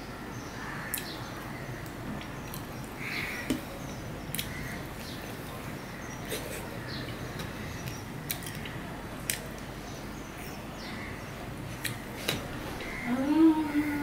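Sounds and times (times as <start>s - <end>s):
mouth smacking clicks: 4.3s - 4.6s, 7.9s - 9.7s, 11.8s - 12.4s.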